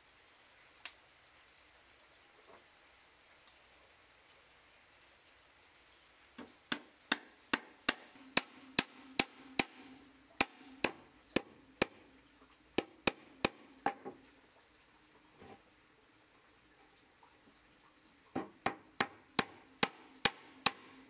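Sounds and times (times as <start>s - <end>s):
hand tool knocking on wood: 6.4s - 12.0s, 12.8s - 14.2s, 18.4s - 20.9s.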